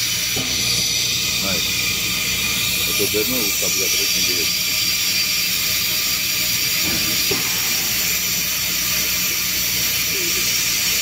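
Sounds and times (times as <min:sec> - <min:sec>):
rushing air hiss: 0:06.6 - 0:11.0.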